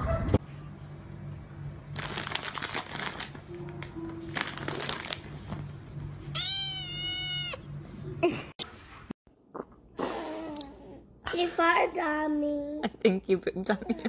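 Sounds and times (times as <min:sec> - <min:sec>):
plastic bag crinkling: 0:01.9 - 0:05.7
cat meowing: 0:06.3 - 0:07.6.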